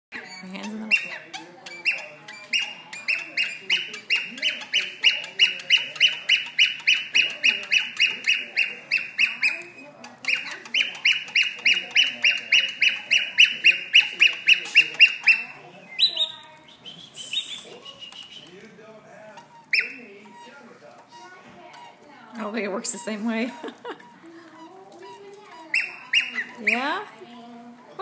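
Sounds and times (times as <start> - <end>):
cockatiel whistling: 0.1 - 18.6, 19.5 - 21.9, 23.9 - 27.2.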